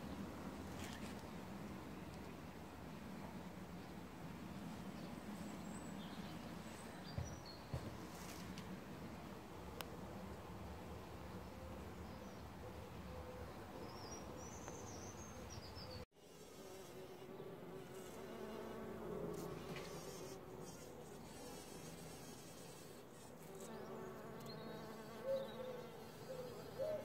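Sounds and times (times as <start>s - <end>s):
faint outdoor noise: 0.0s - 27.0s
bumblebee buzzing: 16.2s - 27.0s.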